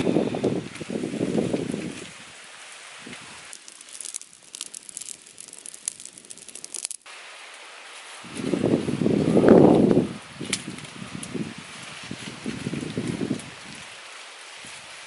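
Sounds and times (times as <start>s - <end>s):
person blowing on fire: 0.0s - 2.1s
wood fire crackling: 0.0s - 15.0s
low gusty rumble: 8.2s - 13.9s.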